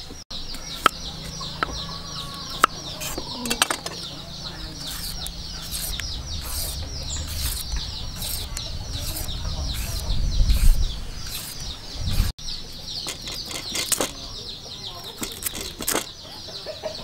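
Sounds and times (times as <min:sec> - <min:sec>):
peeler scraping carrot: 0:00.5 - 0:14.3, 0:15.0 - 0:16.1
low rumble: 0:04.0 - 0:12.4.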